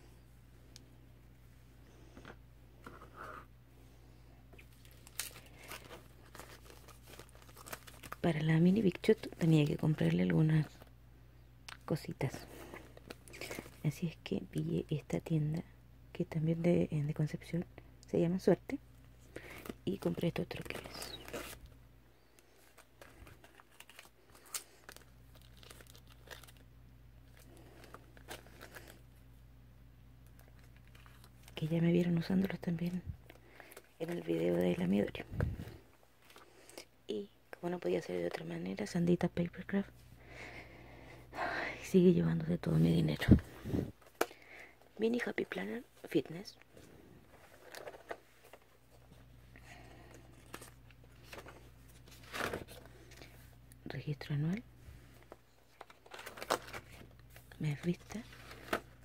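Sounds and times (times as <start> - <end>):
packaging rustling and crinkling: 4.6 - 10.9, 12.5 - 13.8, 19.3 - 29.1, 46.8 - 49.3, 50.1 - 53.5, 55.2 - 59.0.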